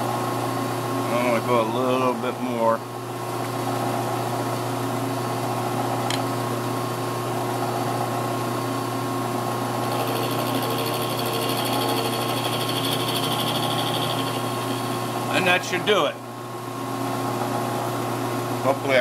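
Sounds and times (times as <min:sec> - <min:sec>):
milling machine cutting wood: 0:09.8 - 0:16.0.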